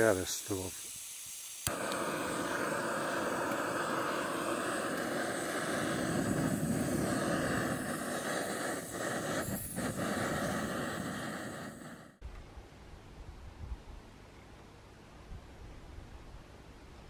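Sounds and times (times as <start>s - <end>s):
gas stove roaring: 1.6s - 12.2s.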